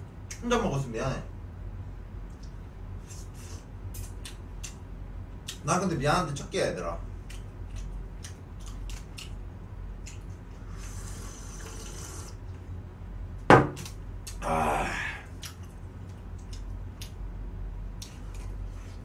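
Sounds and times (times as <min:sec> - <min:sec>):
person chewing: 0:07.2 - 0:09.4, 0:10.0 - 0:11.0, 0:15.2 - 0:17.2
mug knocking on desk: 0:13.5 - 0:13.8
person exhaling: 0:14.4 - 0:15.4.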